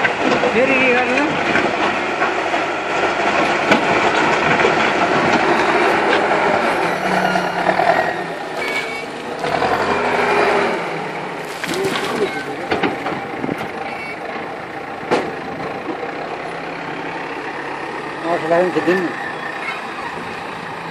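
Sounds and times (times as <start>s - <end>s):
diesel engine working under load: 0.0s - 20.9s
loader bucket pushing into soil: 3.3s - 14.4s.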